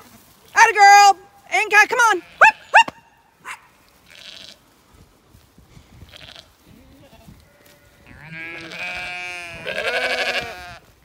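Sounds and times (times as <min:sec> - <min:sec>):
sheep bleating: 0:04.1 - 0:04.6, 0:06.1 - 0:10.8.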